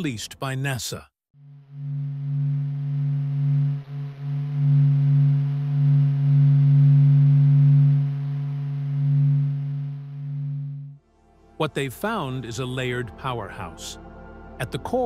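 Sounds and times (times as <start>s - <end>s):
low steady hum with overtones: 1.4s - 11.0s.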